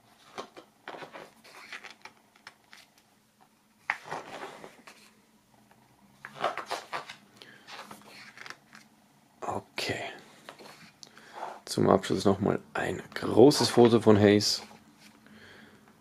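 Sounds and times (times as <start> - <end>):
book pages turning: 0.2 - 3.1, 3.8 - 5.2, 6.2 - 8.9, 10.4 - 11.6, 14.6 - 15.2.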